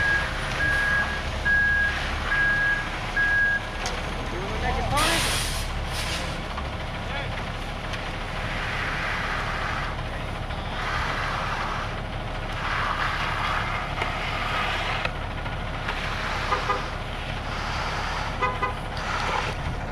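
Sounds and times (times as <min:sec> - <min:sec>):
truck engine running: 0:00.0 - 0:19.9
float scraping wet concrete: 0:07.9 - 0:19.9.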